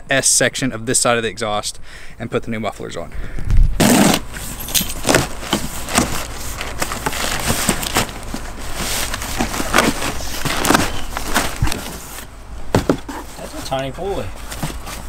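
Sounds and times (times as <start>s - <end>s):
cardboard box being handled: 3.8s - 15.0s
packing paper crinkling: 3.9s - 12.3s.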